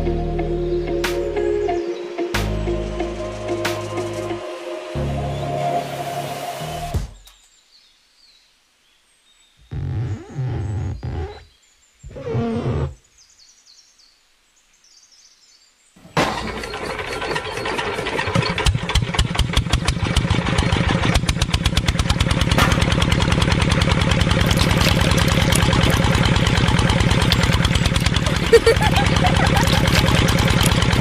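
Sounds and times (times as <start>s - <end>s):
small diesel engine running: 16.2s - 31.0s.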